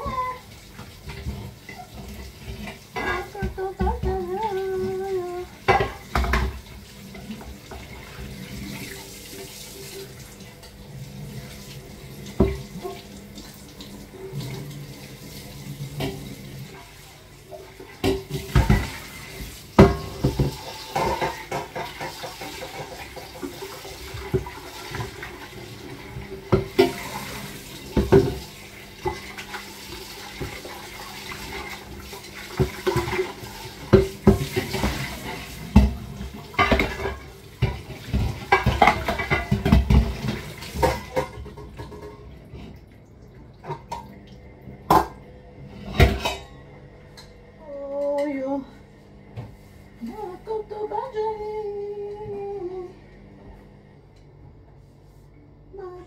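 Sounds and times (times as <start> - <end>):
tap water running into sink: 0.0 - 45.2
kitchenware clattering: 1.0 - 4.5, 5.6 - 8.2, 17.6 - 25.4, 26.5 - 29.4, 32.6 - 42.6, 45.8 - 47.4.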